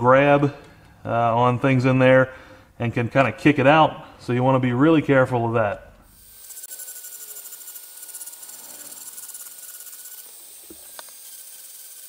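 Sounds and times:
rotary tool grinding metal: 0:06.1 - 0:12.0.

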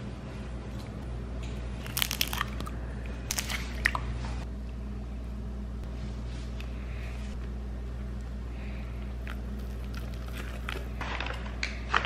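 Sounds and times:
steady low hum: 0:00.0 - 0:12.0
eggs cracking into metal bowl: 0:01.8 - 0:04.0.

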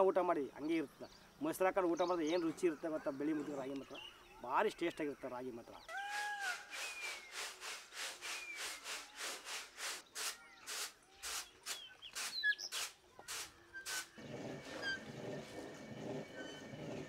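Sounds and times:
birds chirping: 0:00.0 - 0:17.0
grain swishing in winnowing tray: 0:06.2 - 0:14.2
stone hand quern grinding: 0:12.2 - 0:17.0.

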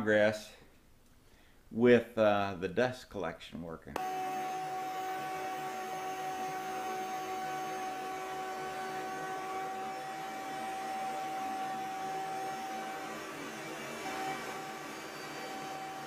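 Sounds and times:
dust collection vacuum: 0:04.0 - 0:16.0
router trimming wood: 0:04.0 - 0:16.0.

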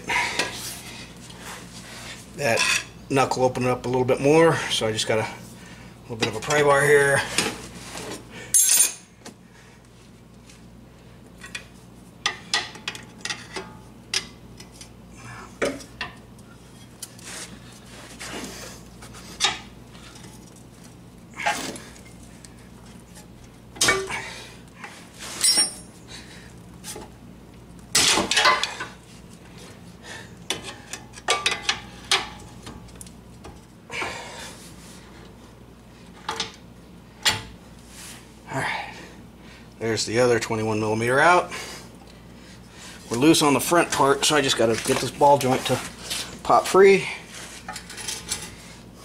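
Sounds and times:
metal tools clinking on steel: 0:08.5 - 0:09.1, 0:25.4 - 0:26.0.

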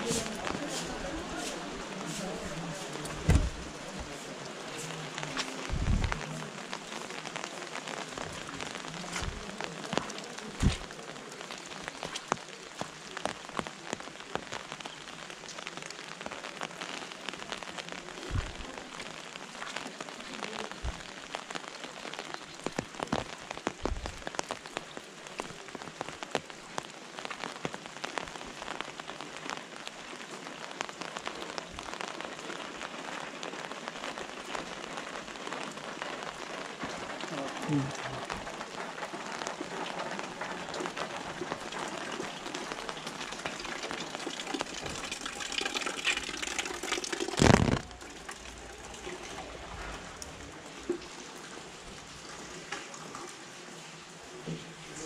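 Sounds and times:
rain falling on an umbrella: 0:00.0 - 0:55.0
dull thumps: 0:03.2 - 0:03.7, 0:10.6 - 0:10.9, 0:18.3 - 0:18.6.

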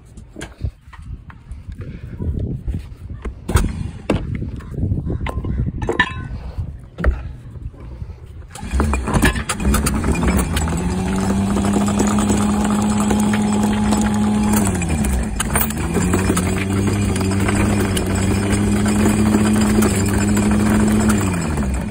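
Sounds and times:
windlass motor hum: 0:00.1 - 0:21.9
chain links rattling: 0:08.6 - 0:21.9.

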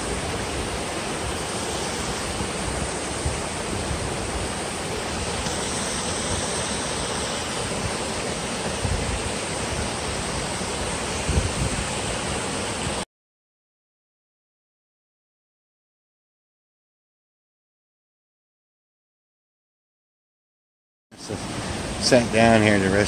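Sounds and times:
stream cascading over boulders: 0:00.0 - 0:13.0, 0:21.2 - 0:23.0.

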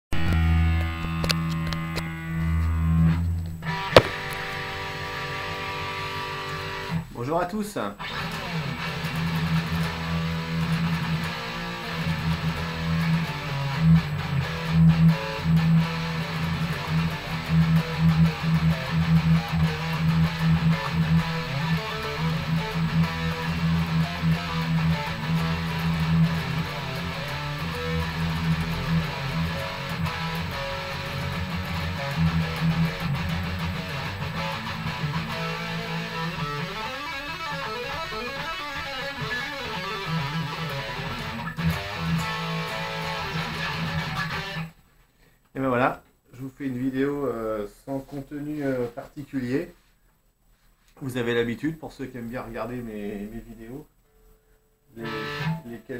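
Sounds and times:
distorted electric guitar riff: 0:00.1 - 0:07.1, 0:08.0 - 0:44.8, 0:54.9 - 0:55.9.

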